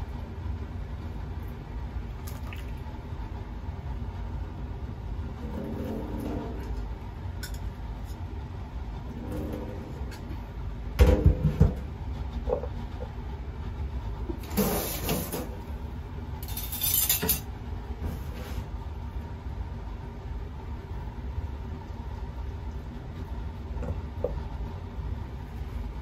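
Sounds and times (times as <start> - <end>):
pot thumping on metal sink: 11.0 - 11.8
metal clattering scrapes: 14.4 - 15.6, 16.4 - 18.7.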